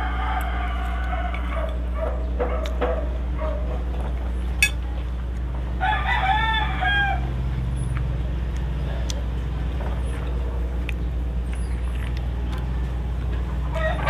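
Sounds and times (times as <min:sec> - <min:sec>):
rooster crowing: 0:00.0 - 0:01.8, 0:05.8 - 0:07.4, 0:13.6 - 0:14.0
steady low hum: 0:00.0 - 0:14.0.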